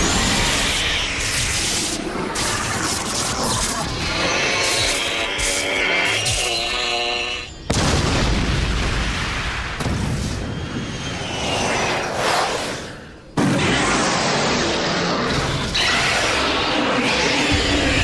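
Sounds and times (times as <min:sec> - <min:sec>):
large explosion with rumble: 0:07.7 - 0:10.9.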